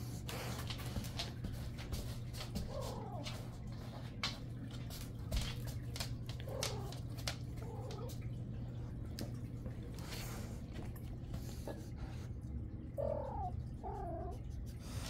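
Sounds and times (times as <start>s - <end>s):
steady low hum: 0.0s - 15.0s
light clicks and taps: 0.2s - 10.1s.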